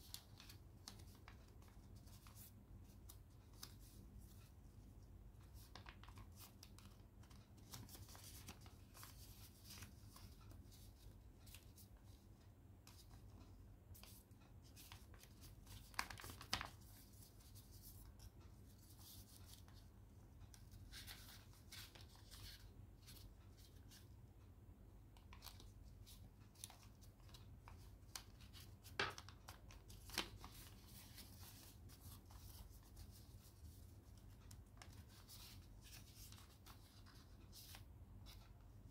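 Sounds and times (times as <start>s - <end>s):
paper rustling and crinkling: 5.4s - 11.9s, 14.0s - 19.8s, 20.5s - 24.0s, 25.2s - 38.6s.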